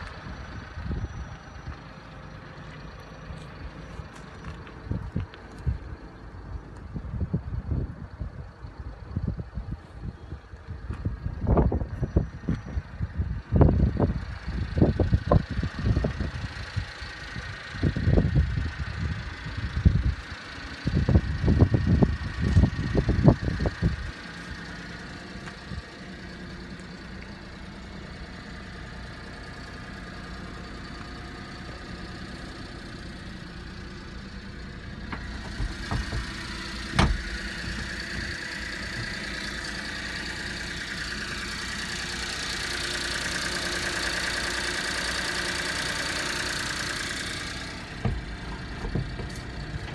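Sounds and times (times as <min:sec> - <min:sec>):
small engine idling: 0:00.0 - 0:49.9
loud low thumps and knocks: 0:35.2 - 0:37.3, 0:48.0 - 0:49.3.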